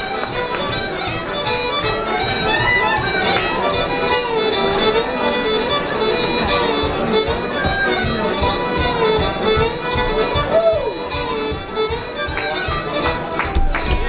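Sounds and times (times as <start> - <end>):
fiddle melody: 0.0 - 14.0
live band low beat: 5.4 - 14.0.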